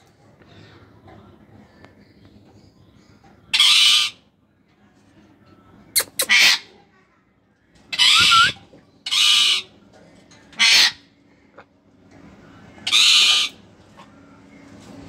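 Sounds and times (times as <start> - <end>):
parrots hissing screeches: 6.0 - 6.7, 8.0 - 9.7, 10.6 - 11.0, 12.9 - 13.6.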